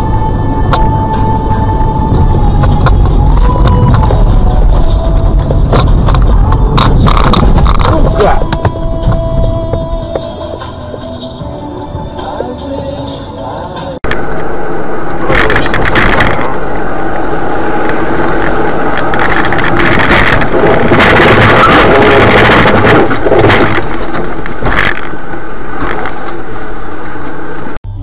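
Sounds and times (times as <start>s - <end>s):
car and road noise: 0.0s - 28.0s
crash scraping and cracking: 18.3s - 26.3s.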